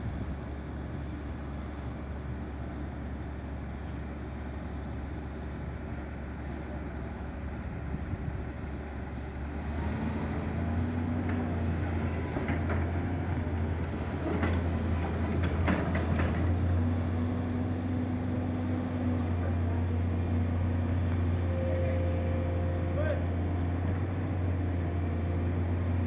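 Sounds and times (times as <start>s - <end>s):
diesel engines droning: 0.0s - 26.0s.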